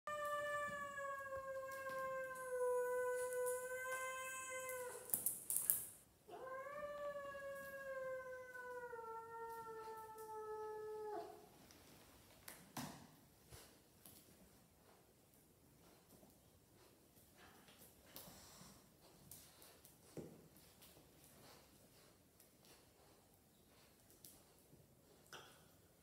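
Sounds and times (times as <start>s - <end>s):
cat yowling: 0.1s - 5.1s.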